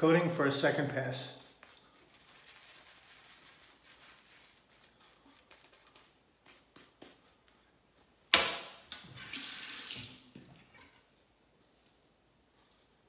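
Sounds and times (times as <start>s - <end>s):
shaving brush strokes: 1.4s - 7.5s, 11.0s - 13.0s
tap water running into sink: 9.2s - 10.8s.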